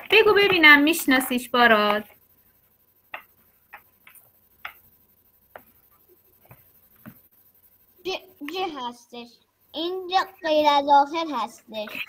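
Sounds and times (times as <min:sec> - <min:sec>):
faint clicks and taps: 0:00.0 - 0:07.5.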